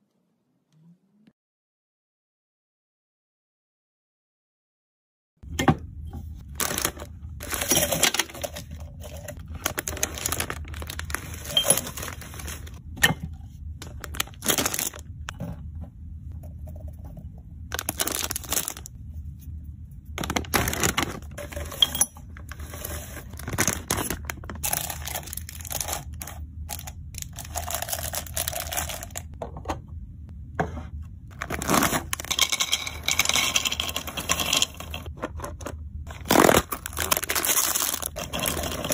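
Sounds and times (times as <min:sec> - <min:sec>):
plastic packets crinkling and tearing: 0:06.5 - 0:12.8, 0:13.8 - 0:15.1, 0:17.7 - 0:18.9, 0:20.2 - 0:21.6, 0:22.4 - 0:29.3, 0:31.3 - 0:32.4, 0:36.1 - 0:38.9
sweets clinking into glass jars: 0:06.6 - 0:12.8, 0:20.2 - 0:29.3, 0:31.4 - 0:35.1, 0:36.7 - 0:38.9.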